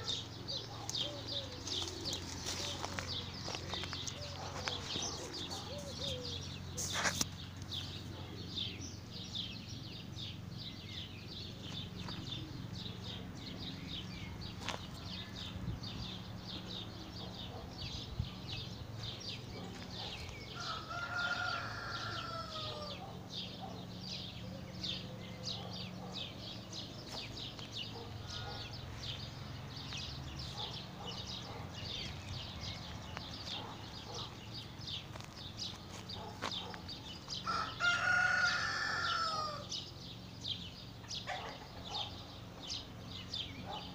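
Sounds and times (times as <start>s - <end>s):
rooster crowing: 20.6s - 23.1s, 37.4s - 39.7s.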